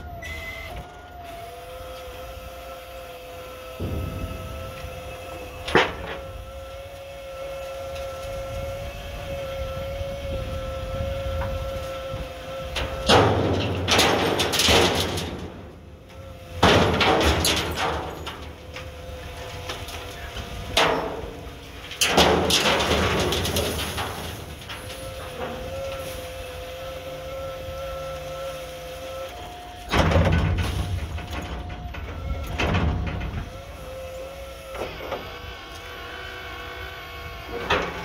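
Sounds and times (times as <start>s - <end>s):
hydraulic whine: 0.0s - 38.0s
trash and wood crashing out: 3.8s - 8.4s, 12.8s - 35.3s.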